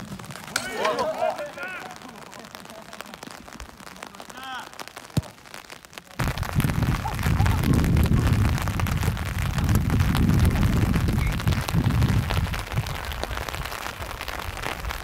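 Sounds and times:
rain pattering on microphone: 0.0s - 15.0s
heavy wind rumble: 6.2s - 15.0s.

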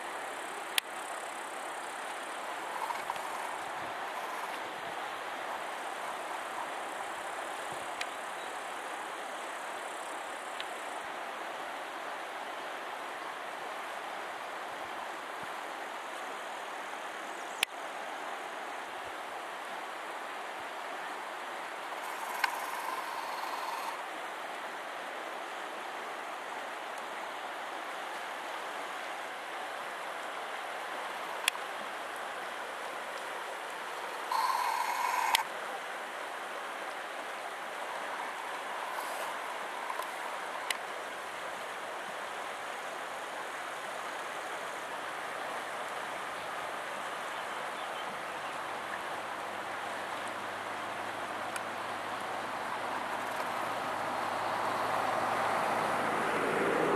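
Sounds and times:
river rushing: 0.0s - 56.9s
sharp clicks: 22.2s - 23.8s.

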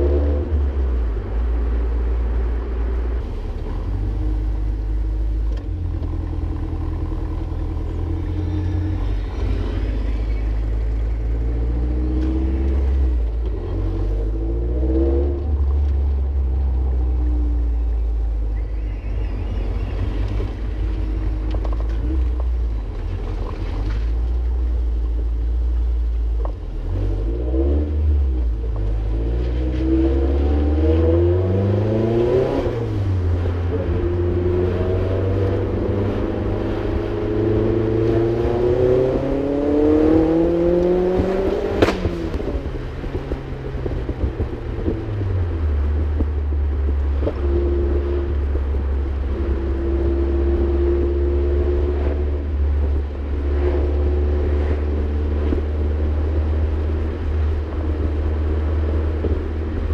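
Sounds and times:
car engine revving: 0.0s - 59.9s
sharp snap: 41.7s - 42.4s.

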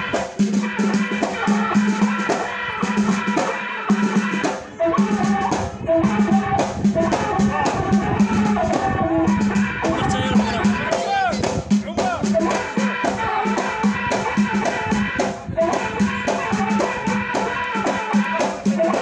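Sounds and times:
frame drums beaten fast: 0.0s - 19.0s
repeating pitched melody: 9.8s - 12.4s.

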